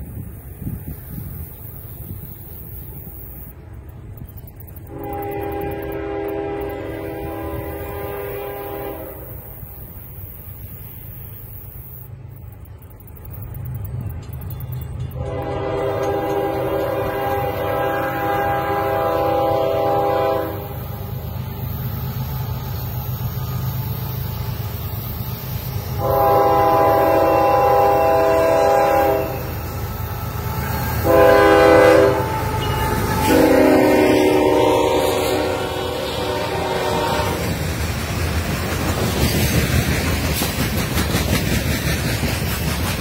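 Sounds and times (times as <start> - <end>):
train rumbling: 0.0 - 43.0
locomotive air horn blasts: 4.9 - 9.6, 15.2 - 21.0, 26.0 - 37.6.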